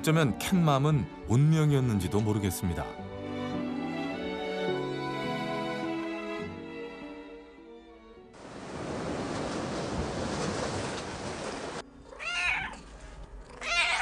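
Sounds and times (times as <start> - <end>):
sad music: 0.0 - 8.4
cat meowing: 12.0 - 12.9, 13.5 - 14.0.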